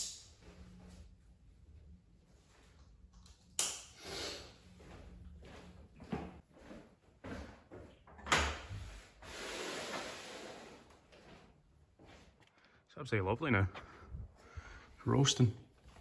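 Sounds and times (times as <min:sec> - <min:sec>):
footsteps on concrete: 0:04.8 - 0:08.0.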